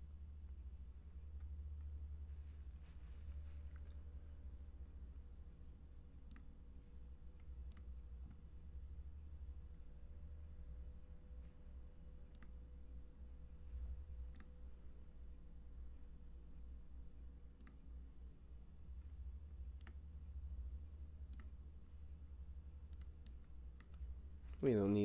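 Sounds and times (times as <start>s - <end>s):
low steady hum: 0.0s - 25.0s
computer mouse clicking: 6.3s - 6.5s, 7.4s - 8.4s, 12.3s - 12.6s, 14.3s - 14.5s, 17.6s - 17.9s, 19.8s - 20.0s, 21.3s - 21.6s, 22.9s - 24.0s.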